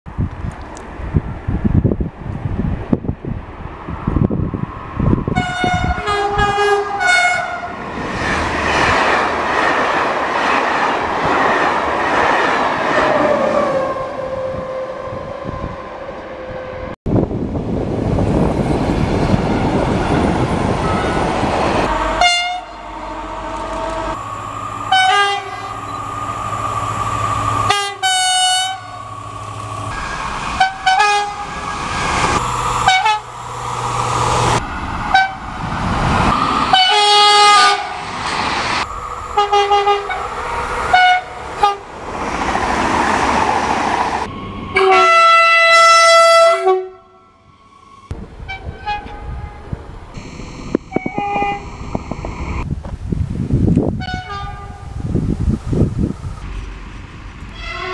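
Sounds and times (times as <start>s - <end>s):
passing train rumble: 0.1s - 57.9s
train horn blasts: 5.3s - 7.7s, 21.8s - 29.2s, 29.9s - 31.7s, 32.4s - 33.5s, 34.3s - 35.4s, 36.7s - 38.0s, 39.3s - 41.9s, 44.7s - 47.5s, 48.5s - 52.6s, 54.0s - 55.0s, 57.5s - 57.9s
two-note train horn call: 5.4s - 7.7s, 21.9s - 26.3s, 27.7s - 29.1s, 32.4s - 33.4s, 39.3s - 40.3s, 44.8s - 47.4s, 50.2s - 52.3s, 57.5s - 57.9s.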